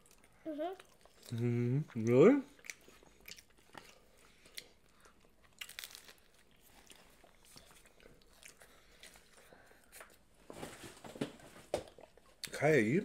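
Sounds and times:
crunching and chewing taco: 0.0 - 10.3.

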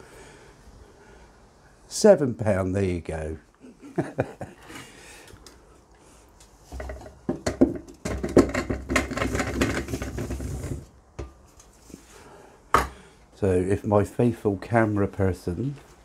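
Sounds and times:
potatoes knocking against metal: 6.7 - 10.1.

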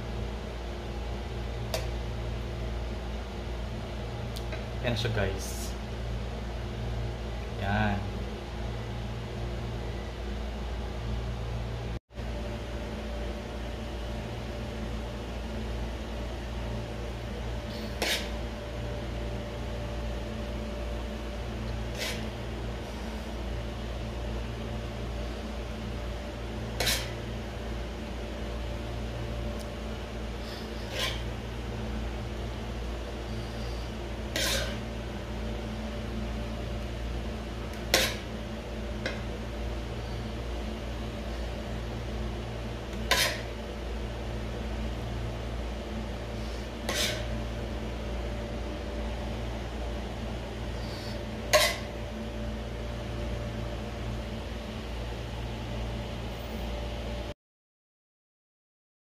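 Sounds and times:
fan motor humming: 0.0 - 57.2
short hissing scrape: 17.7 - 18.4, 21.9 - 22.3, 26.8 - 27.2, 30.4 - 31.3, 33.3 - 34.8, 46.4 - 47.3, 50.8 - 51.9.

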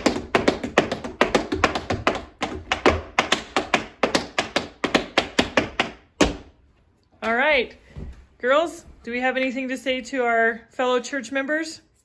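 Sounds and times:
tap shoes on a board: 0.0 - 6.5.

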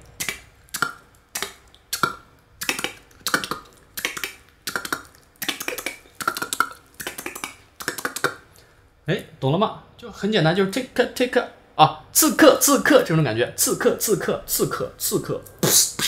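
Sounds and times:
beatboxing mouth-percussion clicks: 0.1 - 8.6, 13.6 - 16.0.

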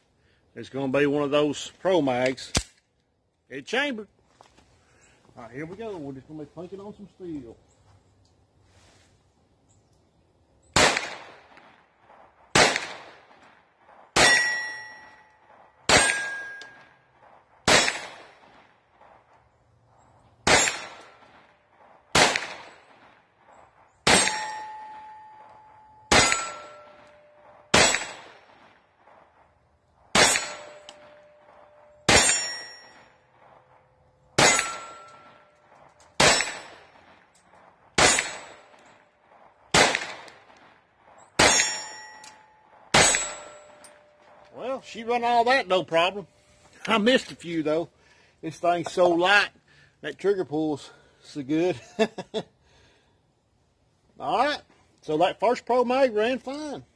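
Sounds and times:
pistol shots: 10.8 - 19.2, 20.4 - 29.2, 30.1 - 33.7, 34.3 - 44.4
steel plate ringing: 14.2 - 17.0, 24.1 - 27.6, 30.2 - 33.3, 34.4 - 35.6, 41.4 - 44.3.

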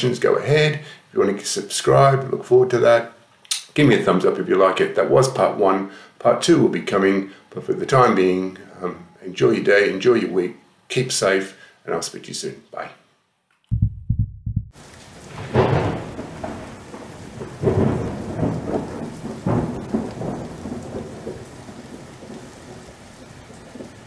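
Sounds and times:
steady rain hiss: 0.0 - 12.9, 14.8 - 24.0
thunder rumbling: 13.7 - 24.0.

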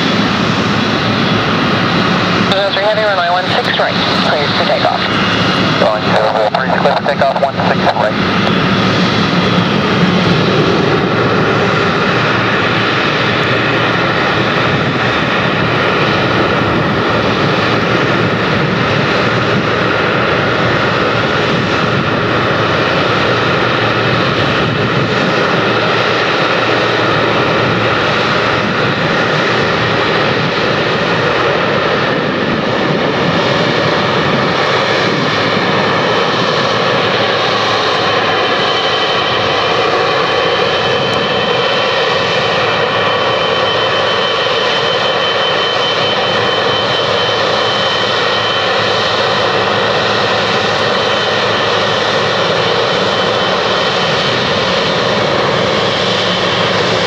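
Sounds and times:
jet engines at taxi power: 0.0 - 57.0.

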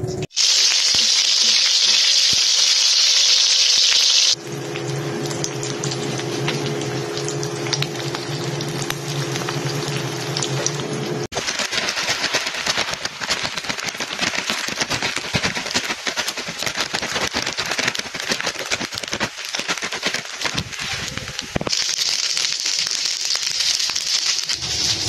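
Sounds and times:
rice frying and crackling: 0.3 - 25.0.

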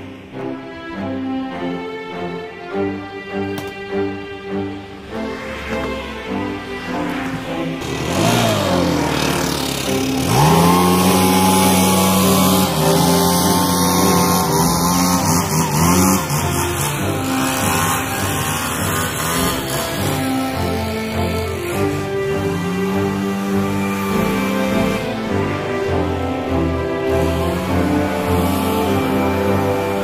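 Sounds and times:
leaf blower engine revving: 7.3 - 30.0.

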